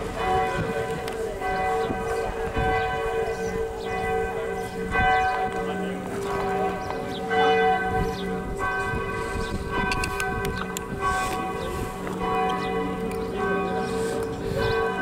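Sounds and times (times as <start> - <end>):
church bells ringing: 0.0 - 15.0.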